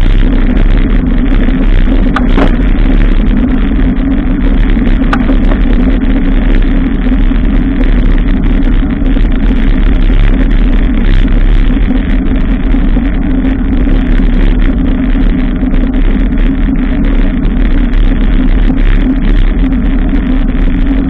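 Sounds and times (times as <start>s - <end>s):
wind and road noise: 0.0s - 21.0s
short rattles: 1.9s - 3.0s.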